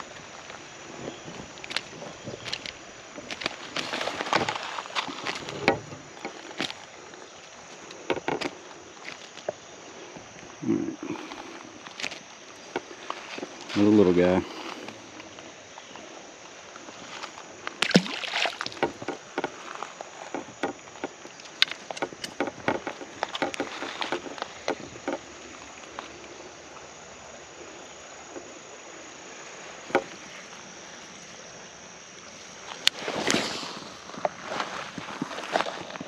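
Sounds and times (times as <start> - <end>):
creek water rushing: 0.0 - 36.0
wading splashes over stones: 16.6 - 31.0.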